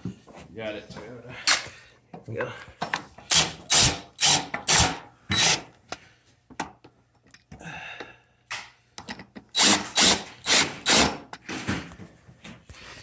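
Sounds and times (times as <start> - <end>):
cordless drill driving screws: 3.3 - 5.7, 9.5 - 11.2.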